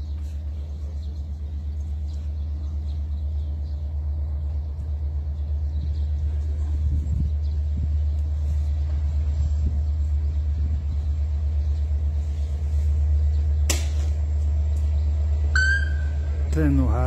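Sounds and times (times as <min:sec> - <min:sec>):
diesel locomotive rumbling: 0:00.0 - 0:17.0
brief high tone: 0:15.6 - 0:16.3.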